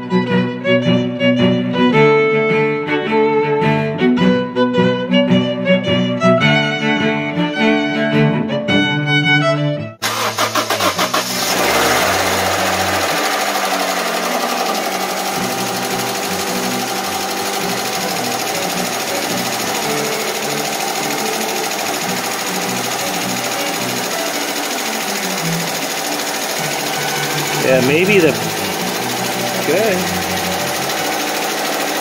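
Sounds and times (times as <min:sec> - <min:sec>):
engine running with ticking clatter: 0:10.0 - 0:32.0.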